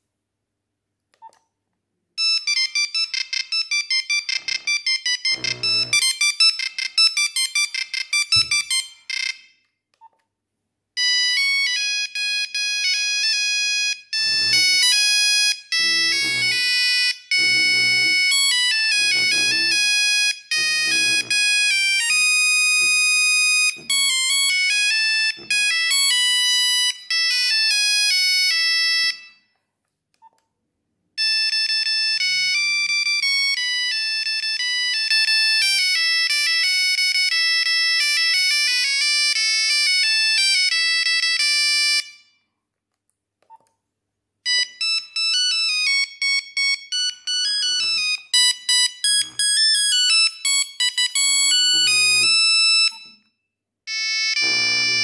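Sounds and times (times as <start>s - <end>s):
monophonic phone ringtone beeping: 31.2s - 35.3s, 53.9s - 55.0s.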